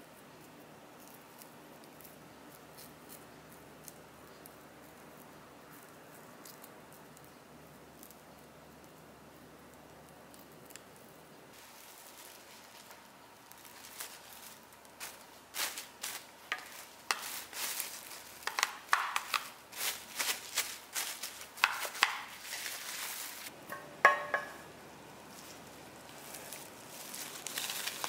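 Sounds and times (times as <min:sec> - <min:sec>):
cling film crinkling: 0:09.7 - 0:23.5, 0:25.3 - 0:28.0.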